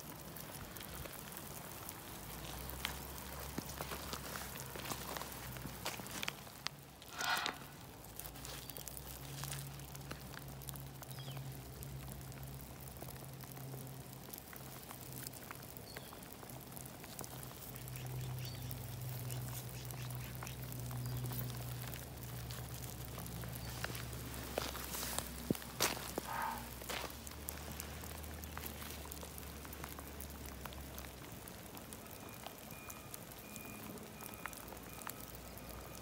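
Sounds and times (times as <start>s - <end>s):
footsteps on wet gravel: 0.4s - 11.4s, 18.4s - 31.2s.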